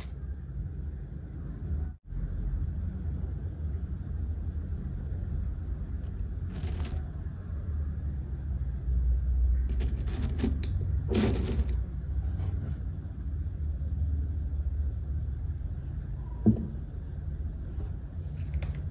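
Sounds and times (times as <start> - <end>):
crunching and rustling: 6.4 - 7.1, 9.7 - 11.8.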